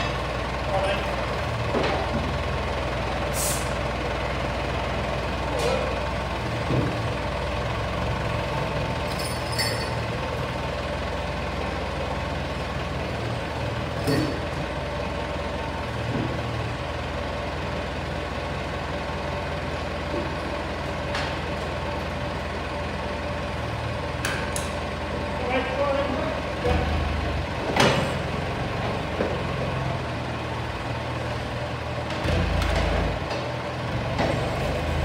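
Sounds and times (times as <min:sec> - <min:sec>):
diesel engine running: 0:00.0 - 0:35.0.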